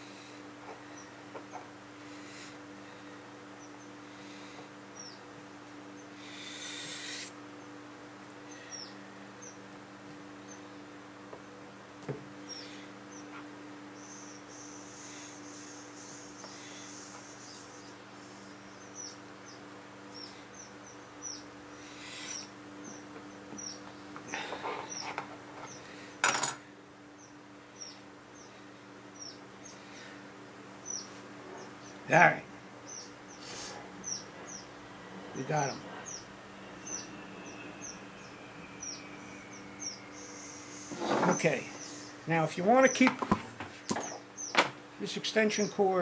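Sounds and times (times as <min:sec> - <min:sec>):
steady low hum: 0:00.0 - 0:46.0
faint high chirps: 0:35.6 - 0:42.1.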